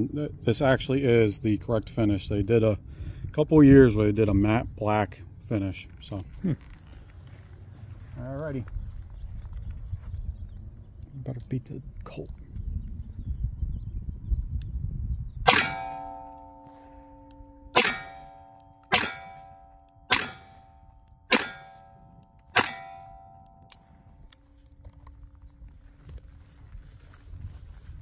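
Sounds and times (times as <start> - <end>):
metallic ring: 15.5 - 24.1.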